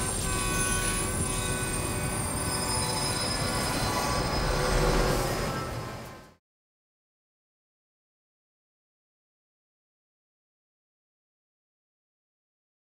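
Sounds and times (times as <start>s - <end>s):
wheels squealing: 0.0s - 6.2s
train rumbling past: 0.0s - 6.4s.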